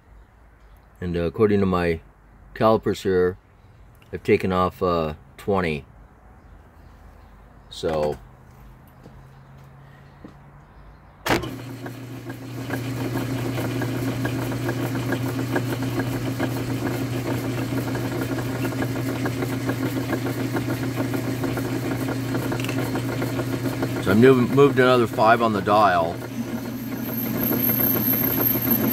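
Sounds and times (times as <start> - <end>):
lathe motor humming: 11.4 - 28.9.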